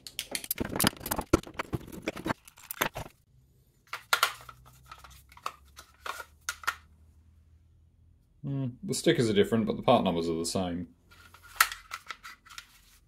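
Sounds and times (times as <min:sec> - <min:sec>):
plastic parts clicking and knocking: 0:00.0 - 0:03.2, 0:03.9 - 0:06.9.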